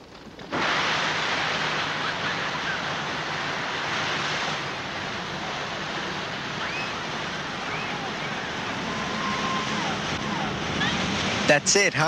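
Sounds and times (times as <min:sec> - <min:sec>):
surf washing onto beach: 0:00.4 - 0:12.0
faint high calls: 0:06.5 - 0:11.1.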